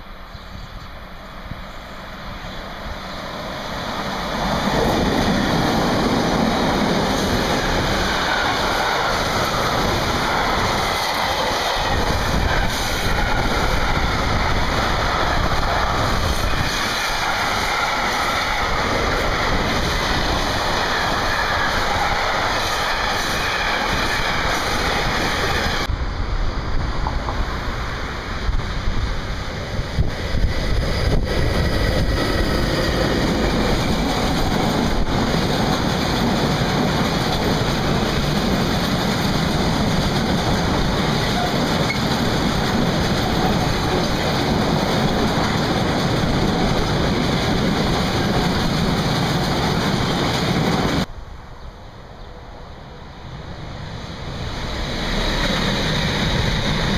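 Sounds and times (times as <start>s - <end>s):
locomotive rolling past: 0.0s - 56.9s
train wheels rumbling on track: 0.0s - 56.9s.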